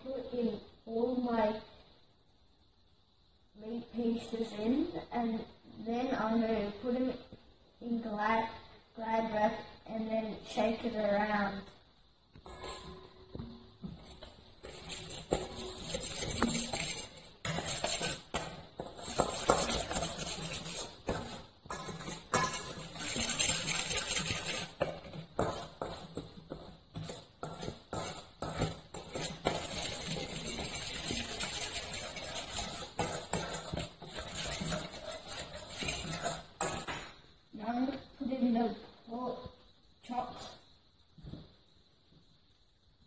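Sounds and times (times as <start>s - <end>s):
fork scraping metal bowl: 12.4s - 13.5s, 14.1s - 37.1s.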